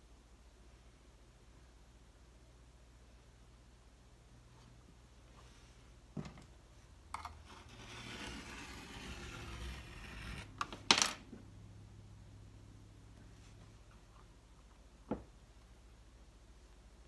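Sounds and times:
knife scraping through clay: 7.2 - 10.6.

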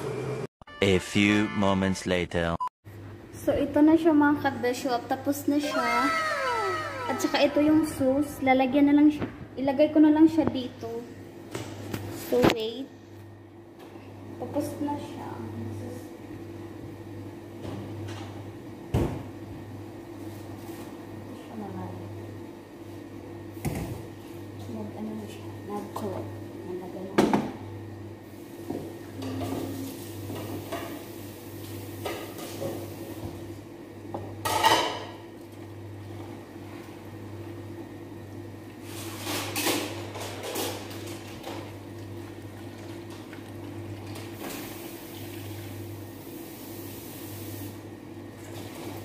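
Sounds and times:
low hum: 5.7 - 9.6.

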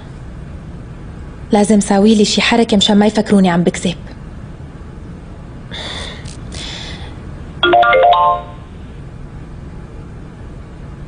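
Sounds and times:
mobile phone ringtone: 7.6 - 8.7.

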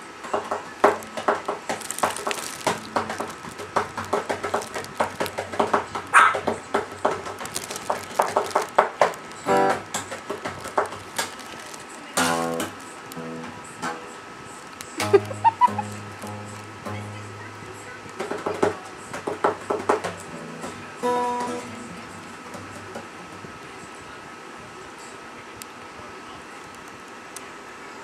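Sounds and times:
small dog barking: 6.1 - 6.5
acoustic guitar picked: 8.8 - 23.6.

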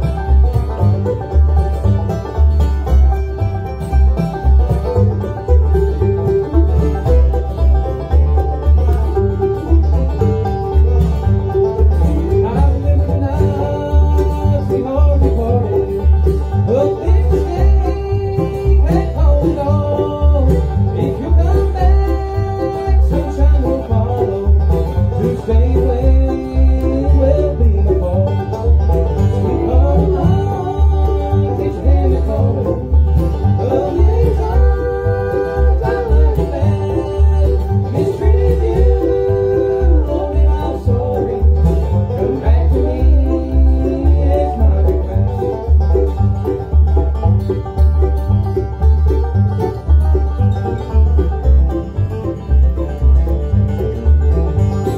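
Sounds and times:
acoustic guitar: 0.0 - 54.9
banjo: 0.0 - 54.9
mandolin: 0.0 - 54.9
upright bass: 0.0 - 54.9.

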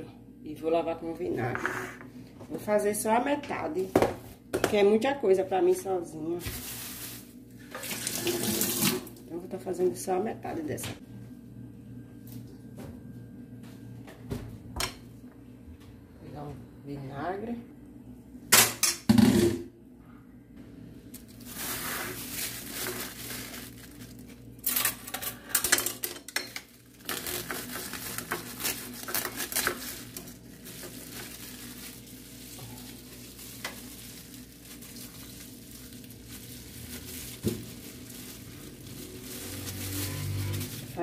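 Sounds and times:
plastic bag rustling: 6.4 - 9.0, 21.1 - 25.4, 26.6 - 41.0.

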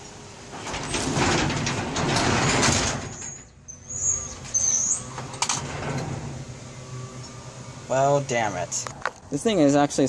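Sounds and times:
garage door rumbling down: 0.5 - 8.6
thin high squeal: 3.1 - 5.2.

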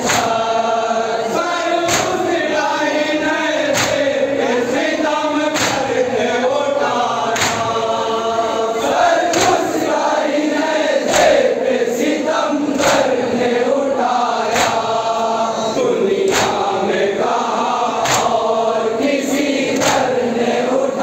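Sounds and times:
chest-beating slaps: 0.0 - 0.5, 1.8 - 2.4, 3.6 - 4.2, 5.5 - 6.0, 7.3 - 7.8, 9.3 - 9.8, 11.0 - 11.5, 12.7 - 13.2, 14.5 - 15.1, 16.2 - 16.7, 18.0 - 18.5, 19.7 - 20.1
men chanting in unison: 0.0 - 21.0.

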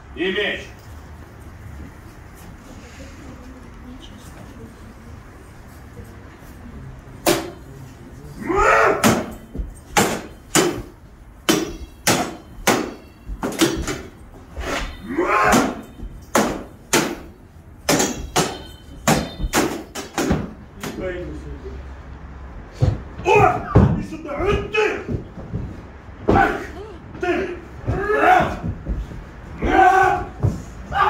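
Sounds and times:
swords clashing: 7.2 - 7.8, 8.4 - 21.0.

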